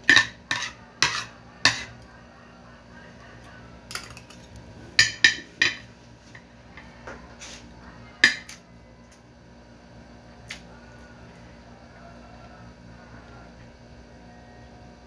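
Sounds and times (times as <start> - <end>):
metal spoon clinking on plate: 3.9 - 5.9.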